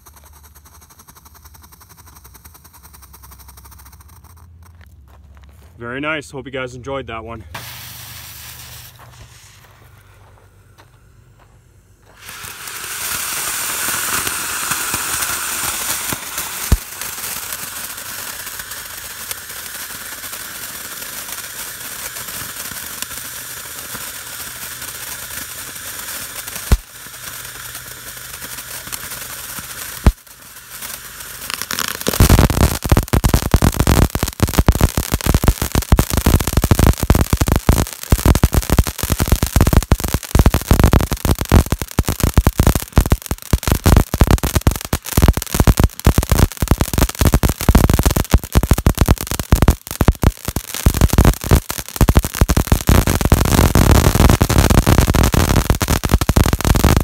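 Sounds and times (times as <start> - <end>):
dense rapid crackling: 0.0 - 4.8, 12.4 - 25.6, 26.4 - 57.0
sharp pops: 7.5 - 10.0, 12.0 - 23.2, 25.4 - 30.2, 30.8 - 57.0
firework fountain hissing: 7.5 - 57.0.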